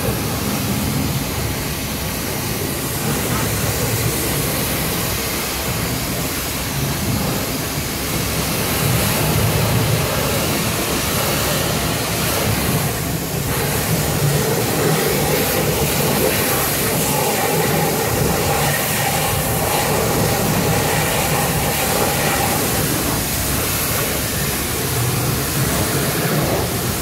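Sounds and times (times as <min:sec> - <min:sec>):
pressure washer spraying water: 0:00.0 - 0:27.0.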